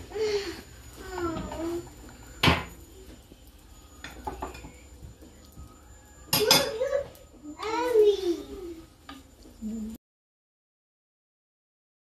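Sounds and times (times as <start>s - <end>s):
metal utensils clinking: 6.2s - 7.2s
cookware clatter: 6.3s - 7.1s.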